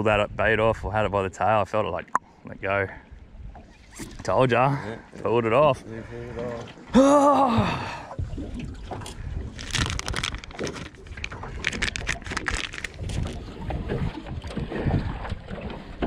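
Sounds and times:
wind rumble on microphone: 0.0 - 1.2, 8.1 - 16.0
fishing gear rustling and clicking: 8.8 - 13.6
plastic packet crinkling: 9.6 - 13.4.

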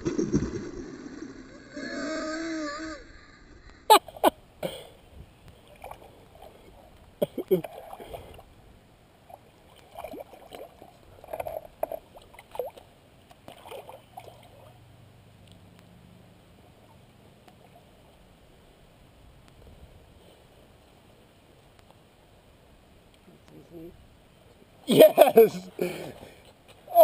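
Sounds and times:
water splashing from thrashing fish: 13.4 - 14.7.

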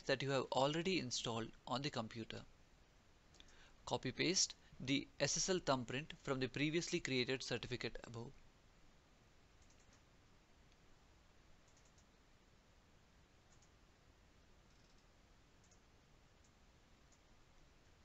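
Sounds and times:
faint computer mouse clicks: 3.3 - 3.6, 9.6 - 10.1, 11.6 - 12.1, 13.5 - 13.8, 14.7 - 17.2.

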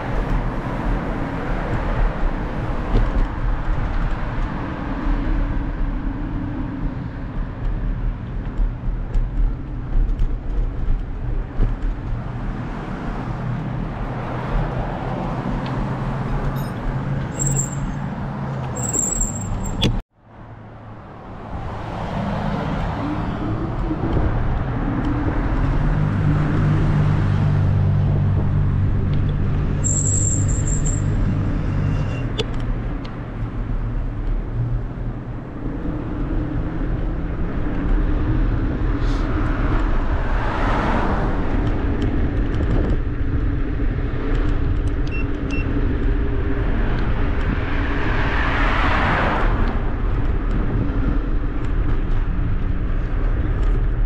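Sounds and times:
vehicles passing: 0.0 - 54.0.

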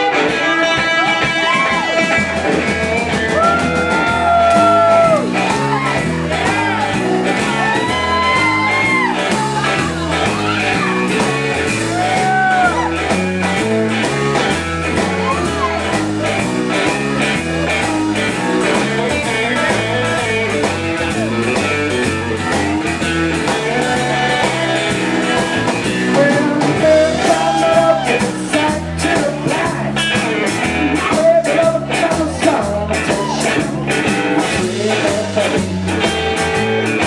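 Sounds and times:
blues-rock band playing: 0.0 - 37.0
electric guitar bent notes: 0.0 - 37.0.

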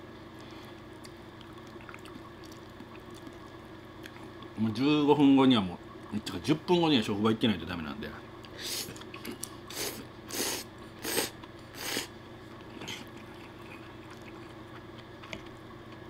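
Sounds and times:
quiet chewing: 0.4 - 4.6, 11.0 - 16.0
man slurping spaghetti: 9.7 - 12.1.

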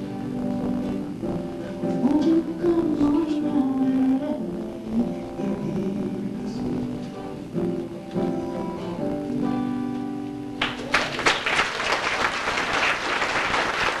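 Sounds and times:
acoustic guitar strumming: 0.0 - 10.9
audience applause: 10.6 - 14.0.

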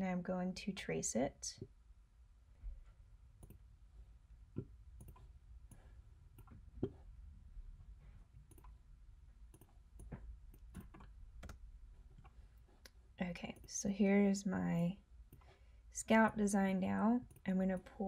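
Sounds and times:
computer mouse clicking: 3.4 - 3.6, 5.0 - 7.0, 8.5 - 8.8, 9.5 - 11.6, 12.2 - 13.8, 17.2 - 17.9.

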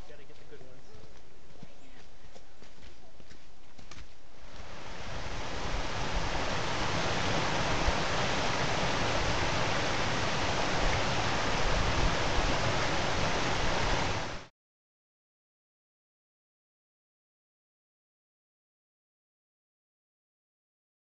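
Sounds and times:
stream rushing over boulders: 4.4 - 14.5.

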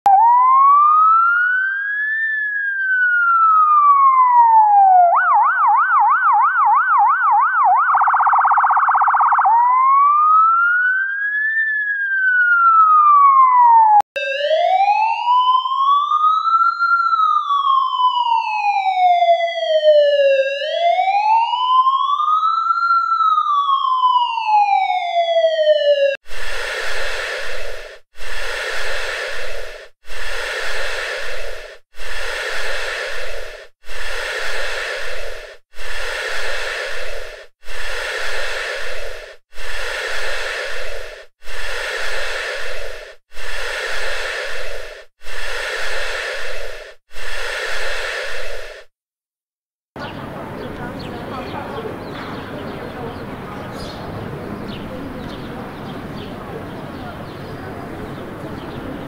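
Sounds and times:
ambulance siren wailing: 0.1 - 28.0
ventilator whooshing pulse: 26.2 - 48.9.

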